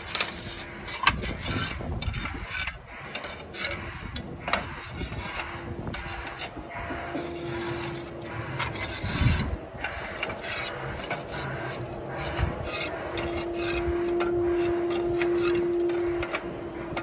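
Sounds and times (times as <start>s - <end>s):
steady background hum: 0.0s - 17.0s
tile scraping against tile: 4.5s - 16.4s.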